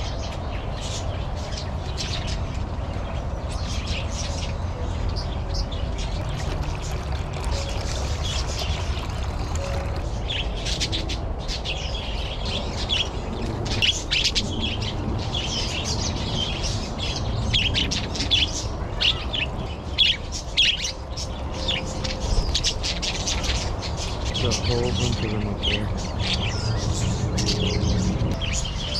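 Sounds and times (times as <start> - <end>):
small birds chirping: 0.0 - 28.9.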